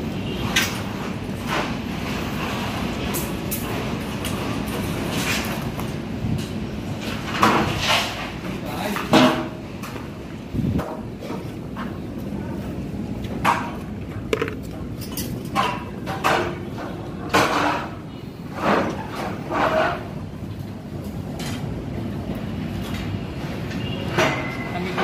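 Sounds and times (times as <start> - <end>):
knocks and metallic clatters: 13.3 - 18.0.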